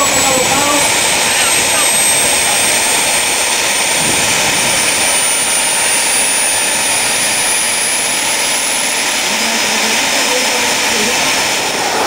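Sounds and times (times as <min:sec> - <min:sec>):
gas turbine roaring and whining: 0:00.0 - 0:12.0.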